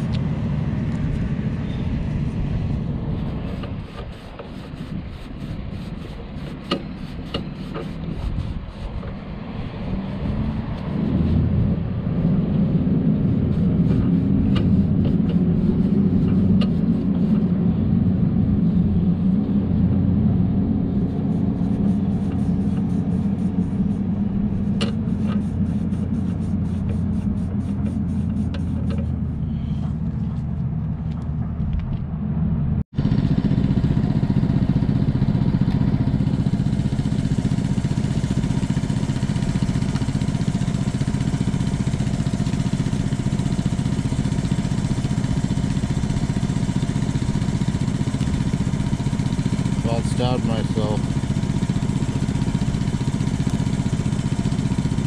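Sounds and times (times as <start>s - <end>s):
engine running steadily: 0.0s - 55.0s.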